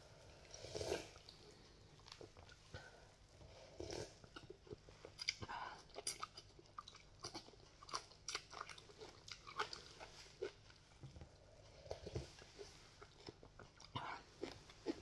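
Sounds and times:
chewing sounds: 0:00.4 - 0:02.9, 0:03.8 - 0:15.0
person slurping noodles: 0:00.5 - 0:01.2.

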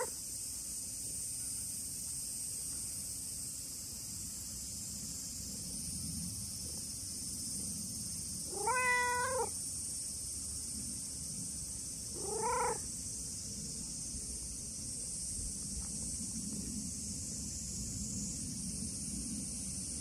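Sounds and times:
cat meowing: 0:08.5 - 0:09.5, 0:12.2 - 0:12.8.

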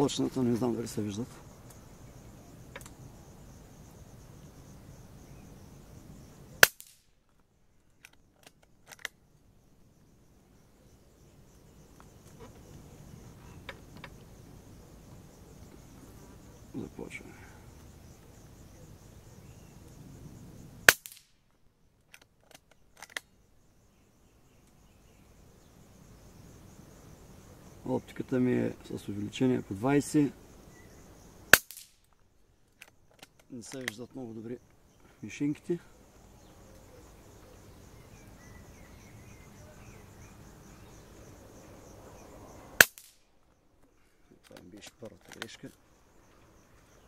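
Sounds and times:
insects chirping in pulses: 0:00.0 - 0:47.0
air rifle shot: 0:06.6 - 0:07.1, 0:20.9 - 0:21.3, 0:31.5 - 0:32.0, 0:42.8 - 0:43.2
faint bird calls: 0:10.4 - 0:20.1, 0:27.0 - 0:28.0, 0:34.2 - 0:42.7.

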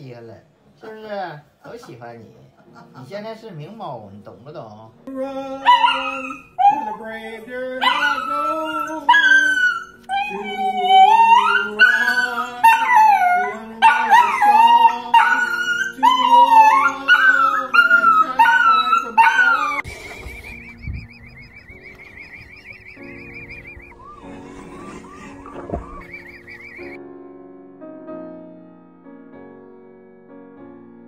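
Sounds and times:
background music: 0:00.0 - 0:31.0
dog howling: 0:05.5 - 0:19.9, 0:23.0 - 0:27.0.

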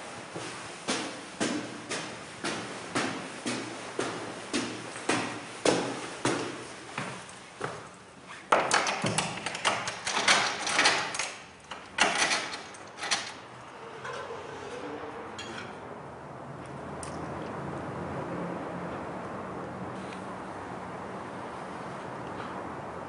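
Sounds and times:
footsteps on hard floor: 0:00.2 - 0:08.0.

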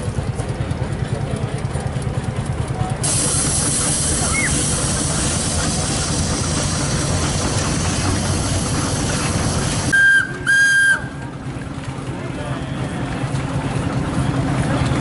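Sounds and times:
rhythmic machine rumble: 0:00.0 - 0:15.0
steam hissing: 0:03.0 - 0:10.0
steam whistle blasts: 0:09.9 - 0:11.2.

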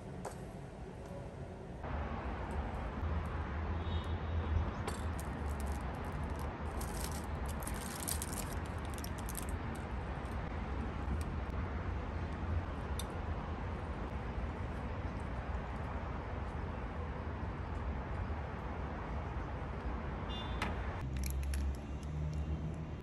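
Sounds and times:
low city rumble: 0:00.0 - 0:23.0
aluminium foil crinkling: 0:05.1 - 0:09.8.

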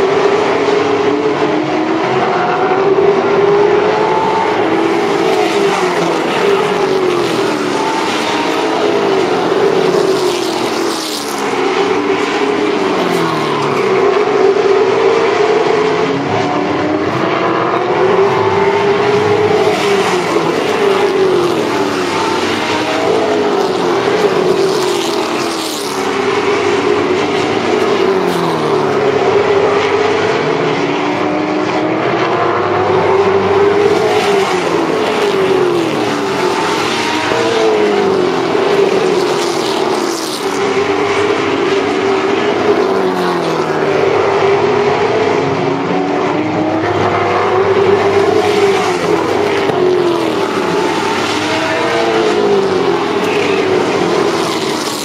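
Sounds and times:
race car engines racing: 0:00.0 - 0:55.0.

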